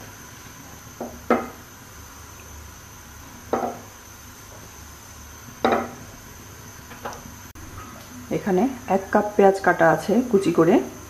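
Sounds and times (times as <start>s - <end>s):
faint steady hum: 0.0s - 11.0s
spices frying in hot oil: 0.0s - 11.0s.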